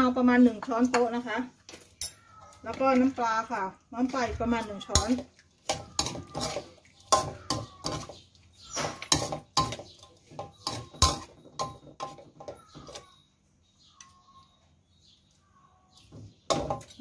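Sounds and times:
metal ladle clanking against wok: 0:04.8 - 0:13.0, 0:16.5 - 0:17.0.

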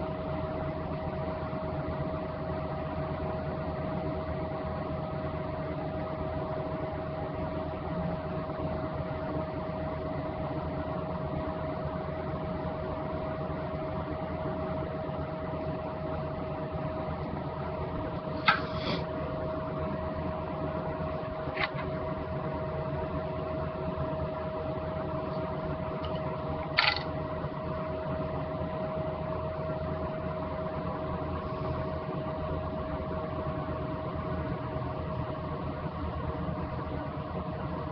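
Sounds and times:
steady mechanical hum: 0:00.0 - 0:37.9.

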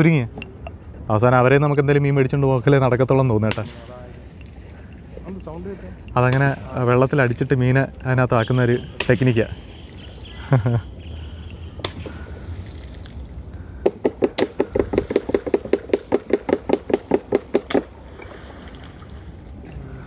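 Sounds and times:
pole slapping water: 0:11.8 - 0:19.9.

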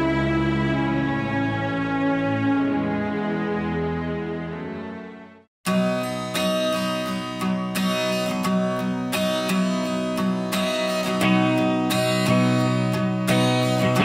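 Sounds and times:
song with strummed guitar chords: 0:05.7 - 0:14.0.

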